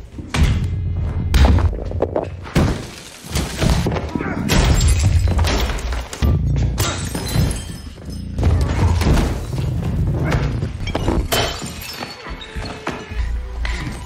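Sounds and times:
glass breaking: 4.5 - 9.8, 10.8 - 12.3.

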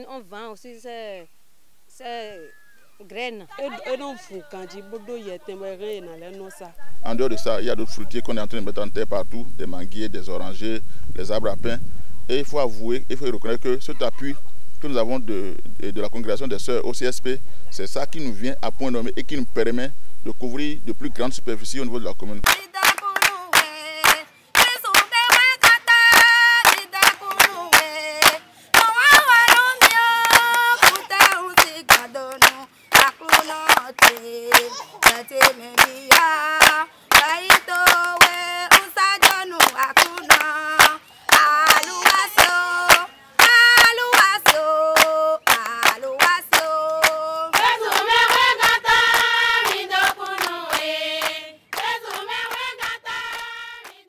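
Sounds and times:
rhythmic hand-clapping: 22.4 - 54.0
women singing in chorus: 22.5 - 54.0.

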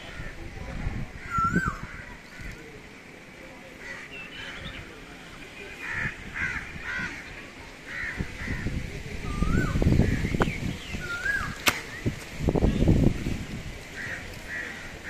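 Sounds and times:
wind buffeting the microphone: 0.0 - 2.6, 5.9 - 15.0
crows cawing: 5.8 - 7.3, 7.9 - 8.7, 14.0 - 15.0
bird whistling: 9.3 - 12.0
sharp click: 11.6 - 12.0.

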